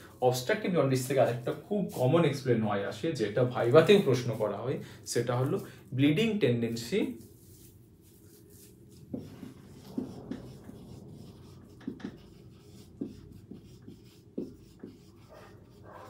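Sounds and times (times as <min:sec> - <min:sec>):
marker pen writing on whiteboard: 0:07.2 - 0:16.0.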